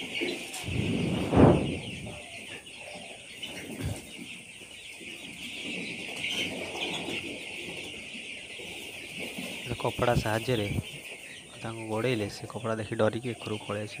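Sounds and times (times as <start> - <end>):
chicks peeping: 0.0 - 14.0
loud rustling thump: 0.6 - 2.1.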